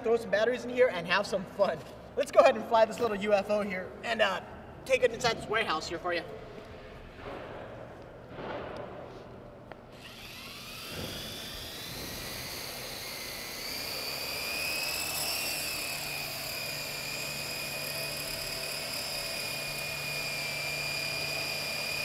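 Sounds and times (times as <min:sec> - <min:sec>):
toy helicopter rotors whining: 0:10.0 - 0:22.0.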